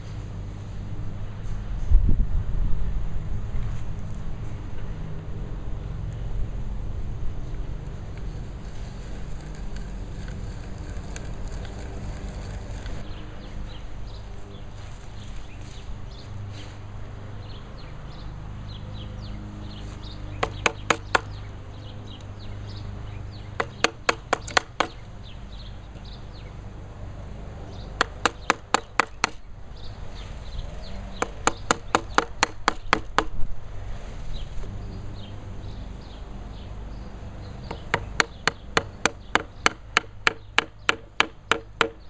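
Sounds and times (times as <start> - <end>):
mallet striking chisel: 20.4 - 21.3, 23.6 - 25.0, 28.0 - 29.4, 31.2 - 33.4, 37.7 - 42.0.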